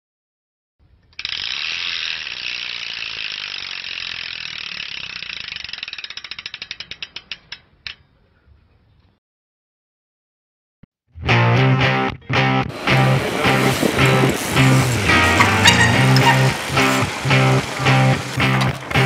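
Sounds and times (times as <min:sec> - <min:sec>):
bicycle freewheel ratcheting: 0:01.1 - 0:08.0, 0:14.0 - 0:19.0.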